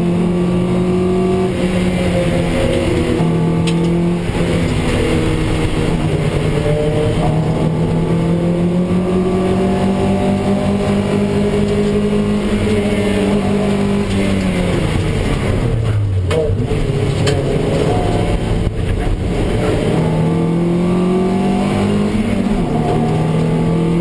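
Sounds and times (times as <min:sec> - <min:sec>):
race car engine running hard: 0:00.0 - 0:24.0.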